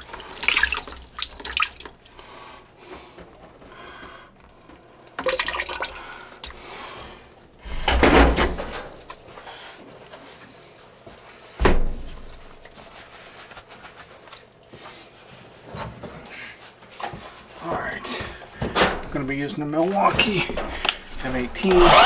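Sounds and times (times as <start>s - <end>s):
water draining: 0.0s - 2.4s, 3.6s - 10.9s.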